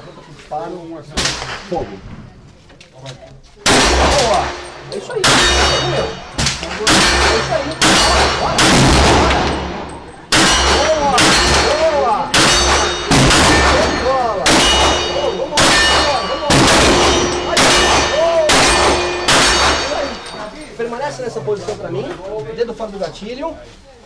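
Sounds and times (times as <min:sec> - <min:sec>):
handgun shots with ringing echo: 0:03.7 - 0:20.4.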